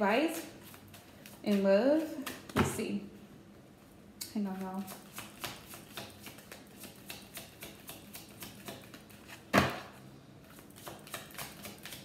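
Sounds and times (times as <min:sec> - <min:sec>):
cards being shuffled by hand: 0:04.4 - 0:09.8, 0:10.5 - 0:12.0.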